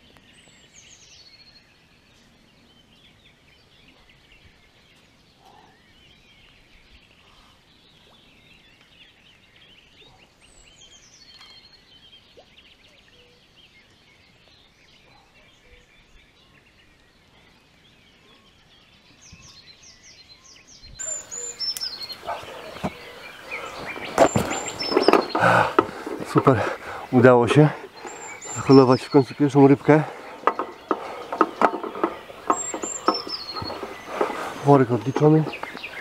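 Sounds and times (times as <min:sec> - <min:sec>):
songbirds chirping: 0:00.0 - 0:36.0
knocks and rustles: 0:21.8 - 0:27.2, 0:27.8 - 0:36.0.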